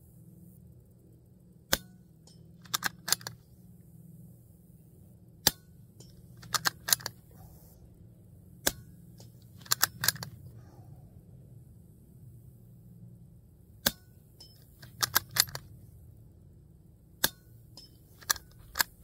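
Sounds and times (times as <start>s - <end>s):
rifle bolt metallic clicks: 1.7s - 3.4s, 5.4s - 7.3s, 8.6s - 10.4s, 13.8s - 15.8s, 17.2s - 19.0s
suppressed rifle shots: 2.6s - 3.4s, 6.3s - 7.4s, 8.6s - 10.5s, 14.7s - 15.7s.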